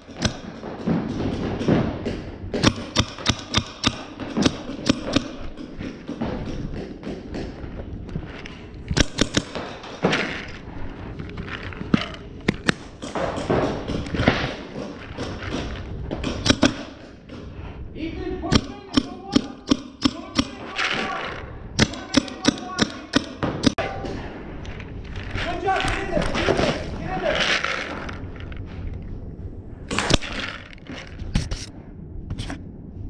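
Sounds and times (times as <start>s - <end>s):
paintball markers firing: 2.6s - 7.6s, 8.9s - 10.6s, 11.4s - 17.1s, 18.5s - 24.2s.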